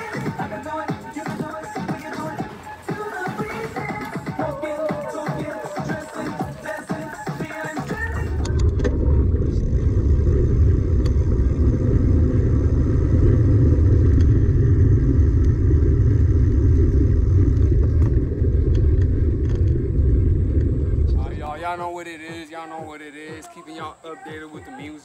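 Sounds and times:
tyre rolling noise: 1.4s - 22.0s
wind buffeting microphone: 8.0s - 22.0s.

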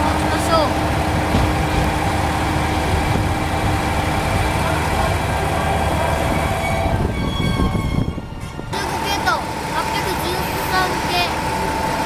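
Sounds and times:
train wheels and motors rumbling: 0.0s - 12.0s.

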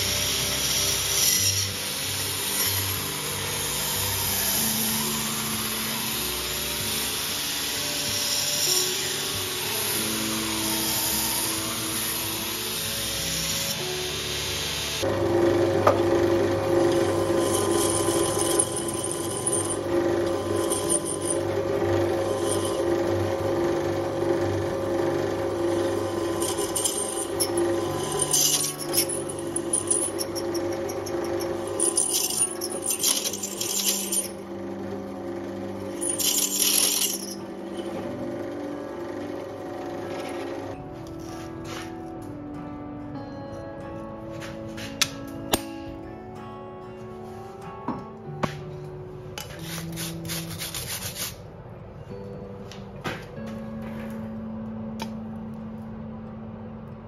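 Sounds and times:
drill bit scraping steel: 0.0s - 12.3s, 16.5s - 34.5s, 35.8s - 38.1s
drill press motor hum: 15.0s - 40.8s.

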